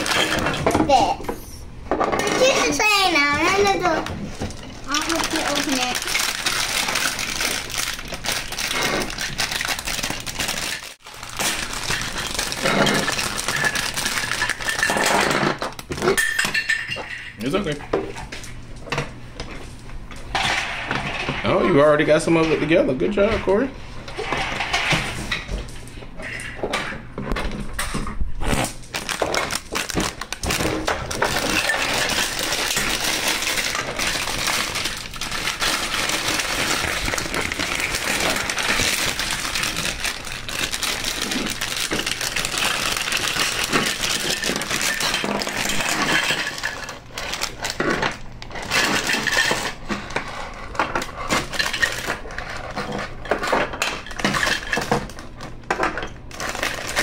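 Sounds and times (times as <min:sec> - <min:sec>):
plastic bag rustling: 0:02.4 - 0:15.4, 0:28.4 - 0:53.2, 0:56.3 - 0:57.0
plastic bricks clattering: 0:28.9 - 0:57.0.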